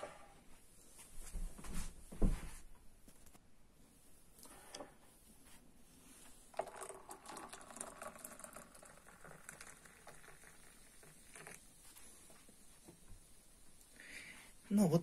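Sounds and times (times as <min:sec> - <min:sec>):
water pouring into mug: 0:06.5 - 0:12.1.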